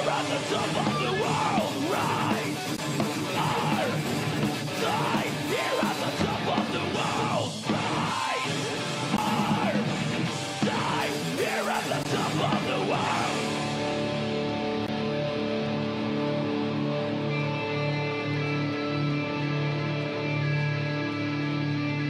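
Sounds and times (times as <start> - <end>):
person singing: 0.0 - 9.9, 10.5 - 13.8
drums: 0.0 - 22.0
electric guitars: 0.0 - 22.0.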